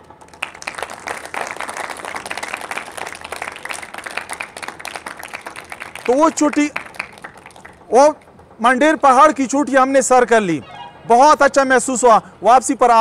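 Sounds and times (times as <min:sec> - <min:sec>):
audience applauding: 0:00.2 - 0:07.8.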